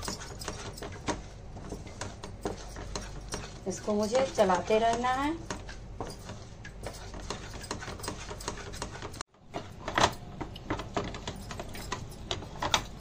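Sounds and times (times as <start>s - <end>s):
spoon scraping frying pan: 0.0s - 9.2s.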